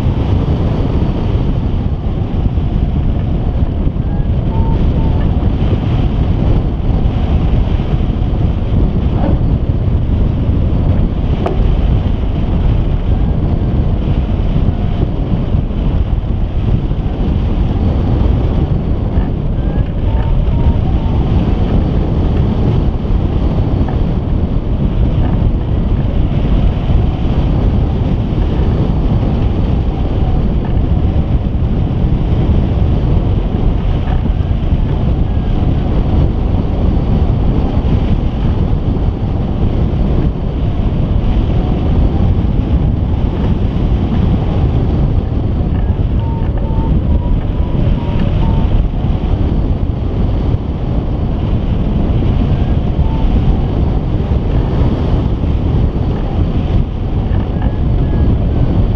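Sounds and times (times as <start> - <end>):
wind rushing over microphone: 0.0 - 58.9.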